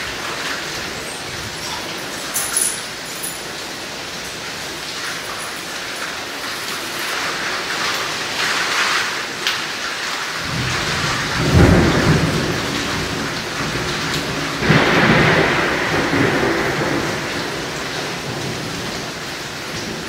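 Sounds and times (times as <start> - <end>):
steady rain: 0.0 - 20.0
thunder rumbling: 10.4 - 20.0.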